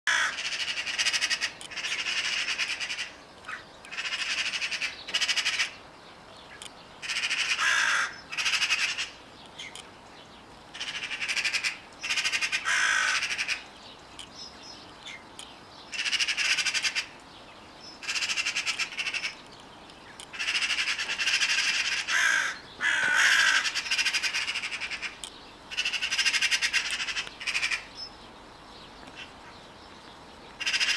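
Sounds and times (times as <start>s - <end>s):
crows cawing harshly: 0.1s - 5.8s, 7.0s - 9.2s, 10.7s - 13.6s, 15.9s - 17.2s, 18.0s - 19.4s, 20.3s - 27.9s, 30.6s - 30.9s.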